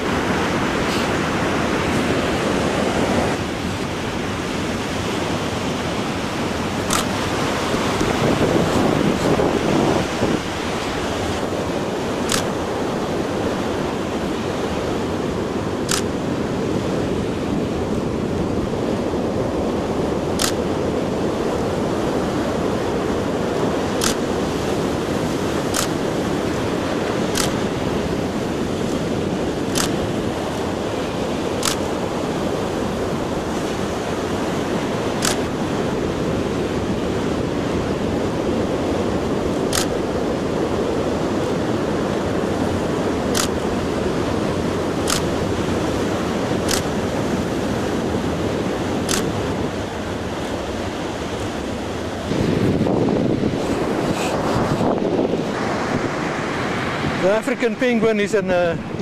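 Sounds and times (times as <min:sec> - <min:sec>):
surf breaking on beach: 0:00.0 - 0:59.0
wind on microphone: 0:00.0 - 0:59.0
camera shutter clicks: 0:06.8 - 0:07.2, 0:12.3 - 0:12.5, 0:15.8 - 0:16.1, 0:20.4 - 0:20.6, 0:24.0 - 0:24.2, 0:25.7 - 0:26.0, 0:27.3 - 0:27.6, 0:29.7 - 0:30.0, 0:31.6 - 0:31.9, 0:35.2 - 0:35.5, 0:39.7 - 0:40.0, 0:43.3 - 0:43.6, 0:45.0 - 0:45.3, 0:46.6 - 0:46.9, 0:49.0 - 0:49.4.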